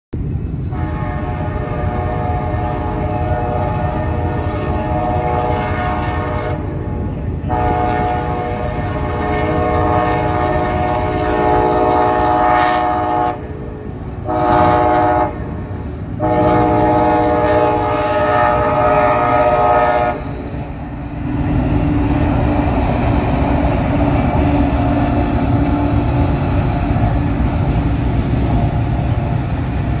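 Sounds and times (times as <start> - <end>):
diesel locomotive rumble: 0.1 - 30.0
train rattling: 0.2 - 30.0
locomotive air horn blasts: 0.7 - 20.7.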